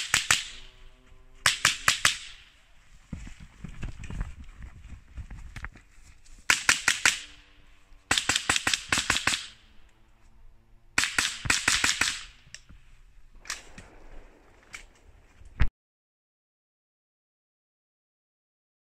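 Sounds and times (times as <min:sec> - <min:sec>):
rifle firing sharp light cracks: 0:00.0 - 0:00.8, 0:01.4 - 0:02.6, 0:06.5 - 0:07.5, 0:08.1 - 0:09.7, 0:11.0 - 0:12.6, 0:13.4 - 0:15.1.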